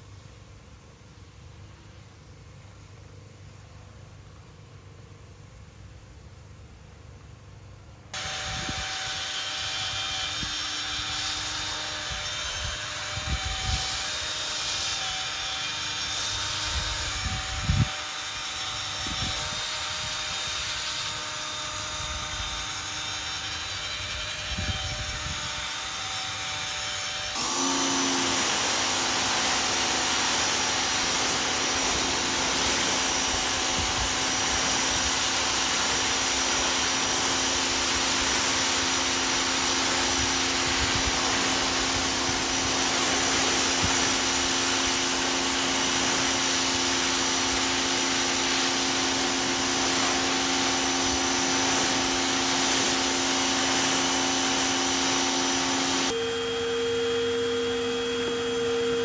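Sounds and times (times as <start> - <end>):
cordless drill motor whine: 8.2 - 46.8, 50.4 - 59.0
pressure washer spraying: 8.2 - 56.2
brush scrubbing mat: 27.4 - 56.1.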